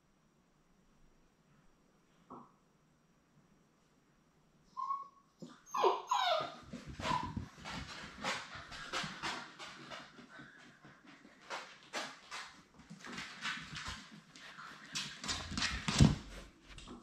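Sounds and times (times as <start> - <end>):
puppies whimpering and yipping: 4.8 - 7.6
paws scrabbling: 6.2 - 17.0.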